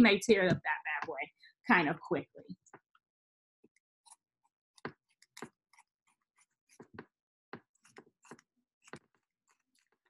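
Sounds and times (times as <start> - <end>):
scissors snipping fabric: 4.1 - 10.0.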